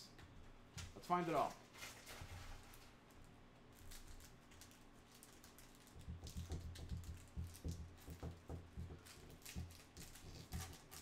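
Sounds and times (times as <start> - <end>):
plastic wrapper crinkling: 1.4 - 8.1, 9.0 - 11.0.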